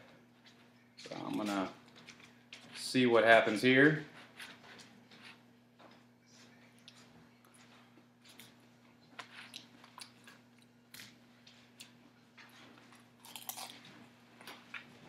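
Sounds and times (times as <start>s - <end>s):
salad being chewed: 6.8s - 14.9s.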